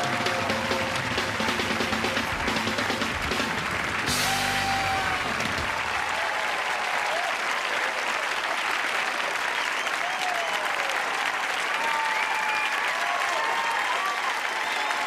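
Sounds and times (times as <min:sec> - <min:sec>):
people cheering whoops: 0:00.0 - 0:01.3, 0:04.1 - 0:08.3, 0:09.5 - 0:15.0
audience applauding: 0:00.0 - 0:15.0.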